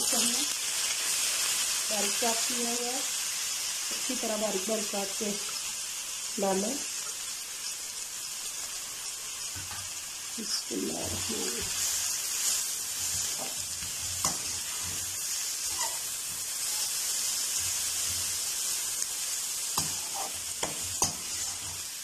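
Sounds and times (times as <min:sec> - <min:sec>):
onions sizzling in oil: 0:00.0 - 0:22.0
metal spoon scraping pan: 0:12.9 - 0:17.0, 0:19.8 - 0:21.9.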